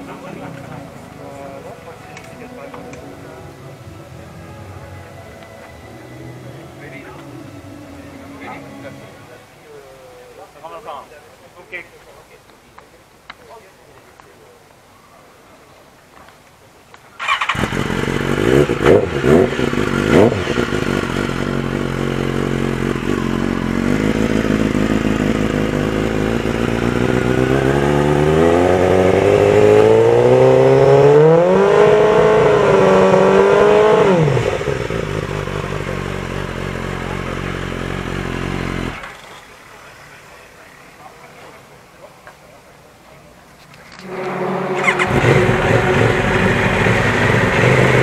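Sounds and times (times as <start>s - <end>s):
superbike engine revving and idling: 17.2s - 39.4s, 44.0s - 48.0s.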